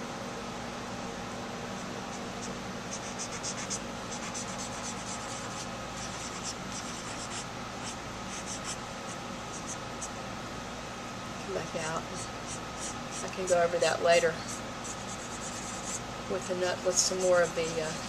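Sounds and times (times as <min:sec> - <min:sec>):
low room hum: 0:00.0 - 0:18.0
cotton swab scratching on paper: 0:02.1 - 0:10.1, 0:12.2 - 0:13.6, 0:14.4 - 0:16.0, 0:16.9 - 0:18.0.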